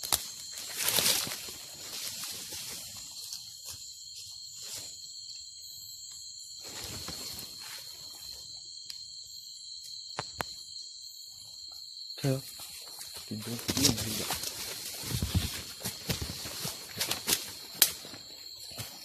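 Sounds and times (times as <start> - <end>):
insects trilling: 0.0 - 19.0
soft rustles: 13.5 - 17.5.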